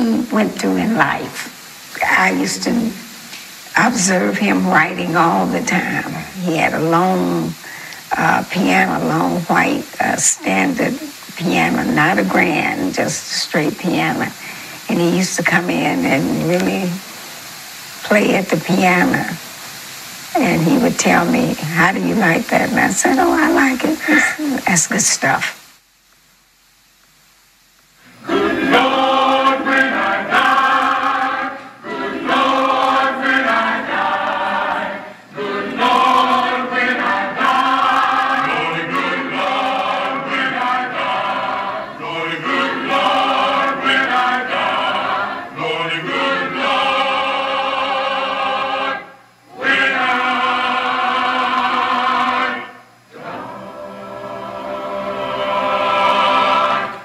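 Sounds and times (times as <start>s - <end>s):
mixed choir singing: 3.7s - 17.0s, 28.1s - 57.0s.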